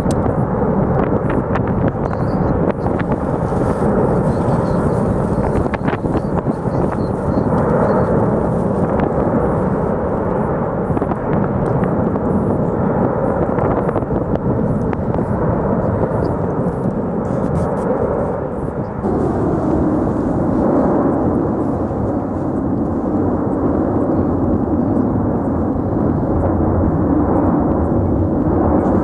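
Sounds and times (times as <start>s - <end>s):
lava fountain deep rushing: 2.7s - 10.4s, 19.0s - 23.9s.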